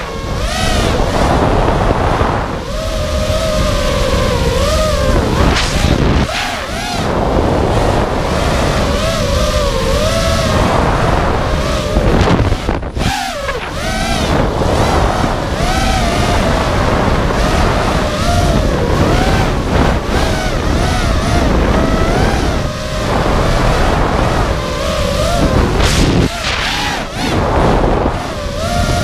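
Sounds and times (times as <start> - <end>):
quadcopter motors whining: 0.0 - 29.0
wind noise on microphone: 0.0 - 29.0.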